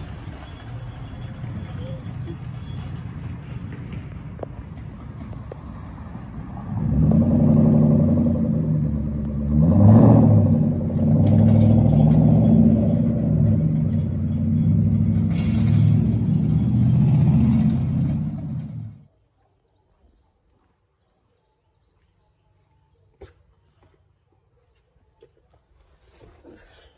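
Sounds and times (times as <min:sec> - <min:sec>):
car engine revving: 0:05.2 - 0:19.0.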